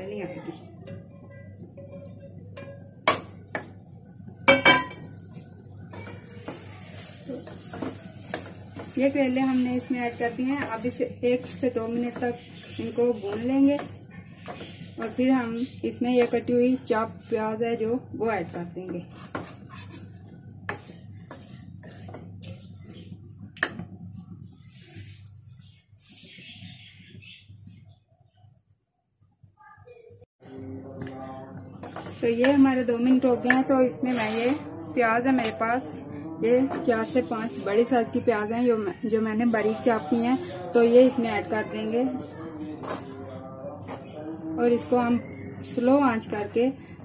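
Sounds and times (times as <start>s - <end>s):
wooden spoon stirring in pot: 0.1s - 28.0s, 30.9s - 47.0s
frying pan knocking on pot rim: 4.5s - 5.1s.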